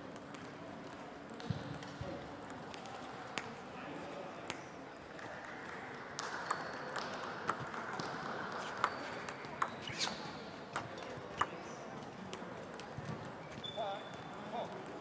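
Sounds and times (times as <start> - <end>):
murmur of sports hall: 0.0 - 15.0
table tennis ball clicking: 6.2 - 9.8, 10.7 - 11.6.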